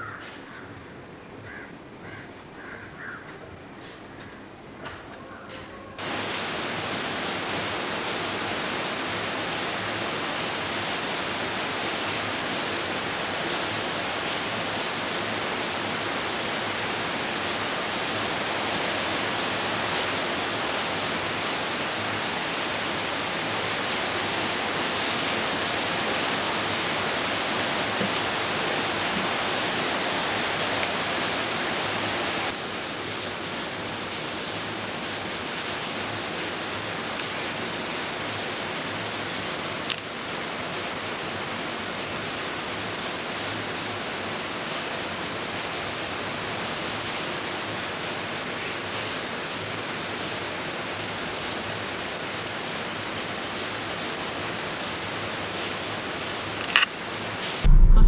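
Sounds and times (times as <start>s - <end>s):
steady rushing hiss: 5.9s - 39.3s.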